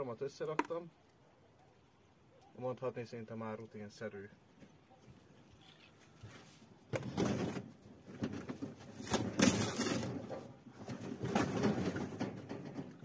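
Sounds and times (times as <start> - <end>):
packaging rustling and scraping: 5.6 - 11.7.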